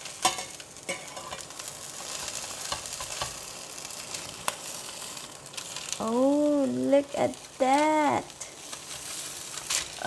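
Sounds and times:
fish sizzling in a pan: 0.0 - 10.0
spatula clicks and scrapes: 2.0 - 3.4, 8.7 - 10.0.

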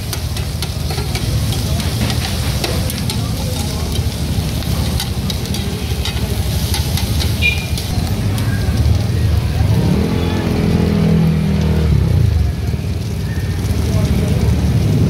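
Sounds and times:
spoon and tongs scraping: 0.0 - 8.5
meat sizzling on a hot plate: 0.0 - 15.0
metal clinking on plate: 4.8 - 8.0.

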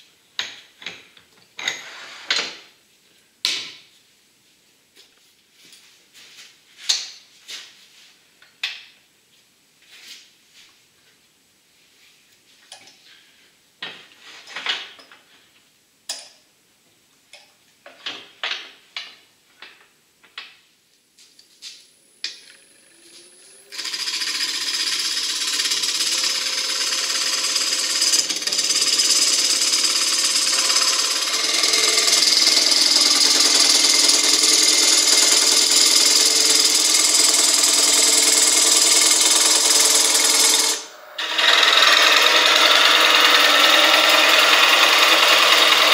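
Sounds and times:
lathe spinning up: 22.4 - 45.9
gouge hissing cutting wood: 26.1 - 45.9.

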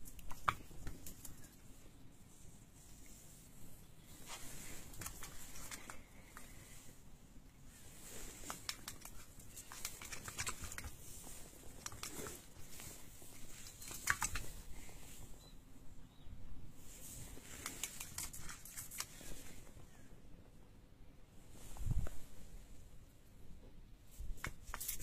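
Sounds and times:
cat paws clicking on wooden deck: 0.0 - 1.6, 8.3 - 14.7, 17.4 - 19.2.

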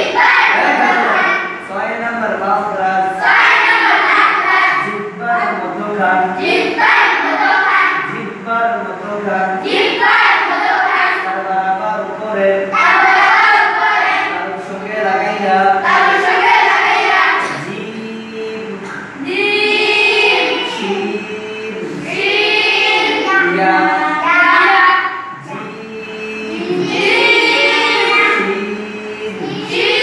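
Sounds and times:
children chanting in unison: 0.0 - 1.7, 3.0 - 4.9, 6.4 - 8.2, 9.6 - 11.4, 12.7 - 18.1, 18.8 - 30.0.

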